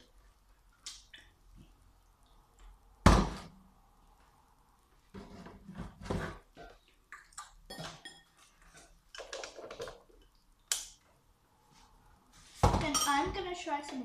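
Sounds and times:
utensils and bowls clinking: 0:07.7 - 0:09.7, 0:12.8 - 0:13.3.

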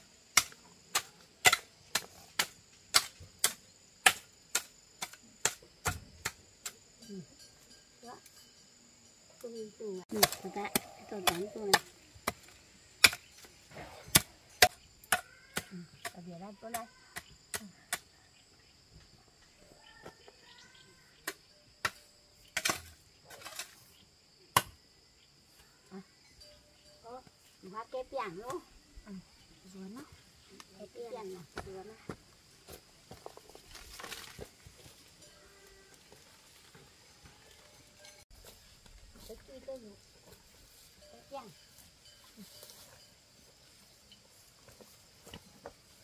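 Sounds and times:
insects droning: 0:00.0 - 0:46.0
sharp chopping strikes: 0:24.6 - 0:24.8.

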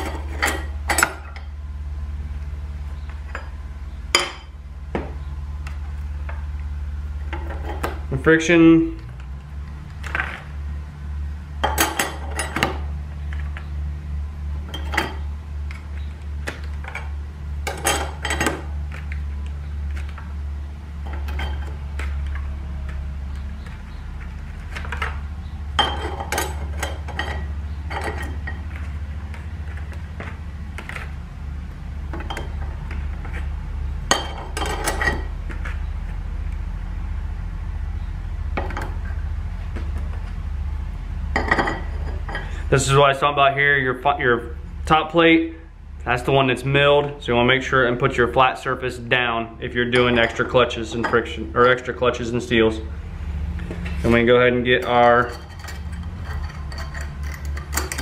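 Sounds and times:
metal clutch plates clinking: 0:00.0 - 0:01.6, 0:11.6 - 0:13.6, 0:14.6 - 0:16.0, 0:16.8 - 0:20.2, 0:21.0 - 0:31.2, 0:32.1 - 0:36.1, 0:41.3 - 0:42.9, 0:49.8 - 0:52.9, 0:53.6 - 0:58.0
steady low hum: 0:00.0 - 0:58.0.

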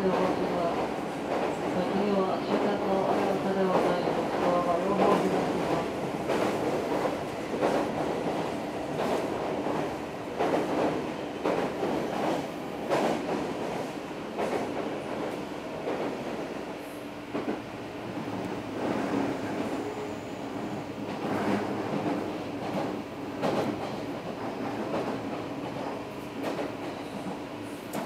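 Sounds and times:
train wheels rumbling on track: 0:00.0 - 0:28.0
clacks over rail joints: 0:21.1 - 0:28.0.

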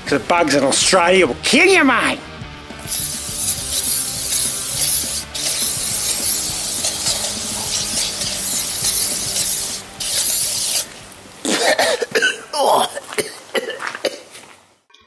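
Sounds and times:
aerosol spray hissing: 0:02.8 - 0:11.0.

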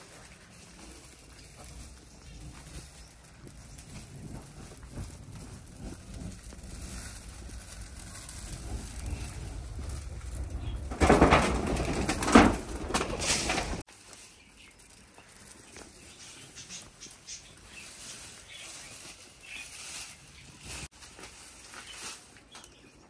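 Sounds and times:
low rustling: 0:00.0 - 0:22.3
bird wings flapping: 0:00.9 - 0:13.8.

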